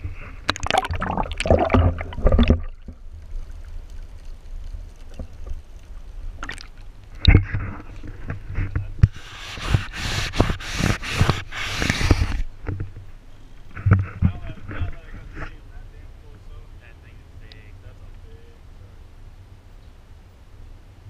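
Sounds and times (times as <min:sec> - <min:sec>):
water splashing and gurgling: 0:00.5 - 0:05.5, 0:06.3 - 0:08.2.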